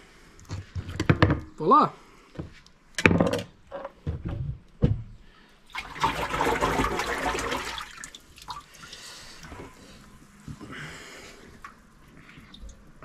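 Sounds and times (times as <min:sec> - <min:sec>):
water splashing and pouring: 0:05.7 - 0:09.9.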